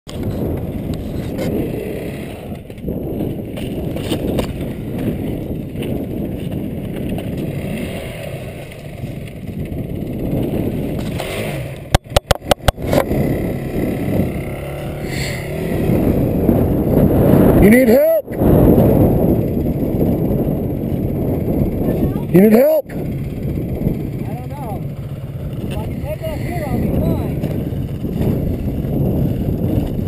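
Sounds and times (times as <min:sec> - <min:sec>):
dirt bike engines: 0:00.1 - 0:30.0
wind on microphone: 0:00.1 - 0:30.0
sharp clicks: 0:11.0 - 0:13.1.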